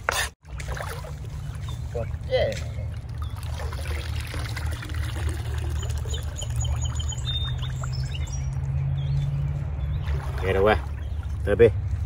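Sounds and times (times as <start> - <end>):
water splashing and pouring: 0.4 - 9.0, 9.9 - 12.0
bird chirping: 5.4 - 11.9.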